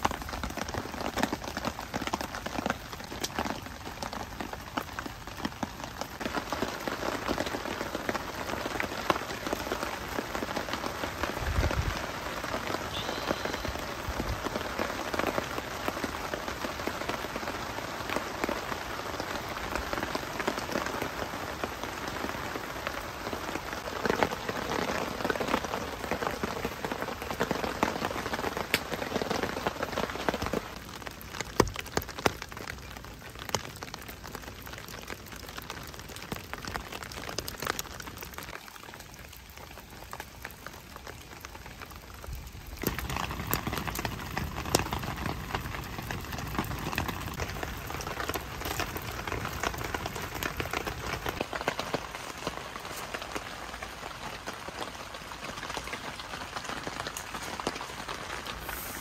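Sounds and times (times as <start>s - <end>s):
rain pattering: 0.0s - 59.0s.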